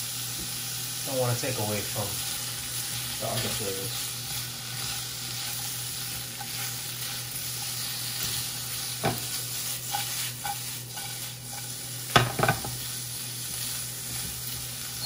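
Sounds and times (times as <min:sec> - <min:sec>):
chicken and onion sizzling in a pan: 0:00.0 - 0:15.0
utensil knocking against a pan: 0:12.1 - 0:12.7.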